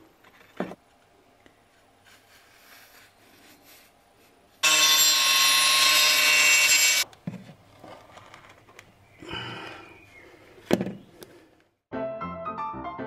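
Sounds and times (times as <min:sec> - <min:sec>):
handling and scraping: 0:00.0 - 0:04.6, 0:07.0 - 0:09.0
angle grinder cutting tile: 0:04.6 - 0:07.0.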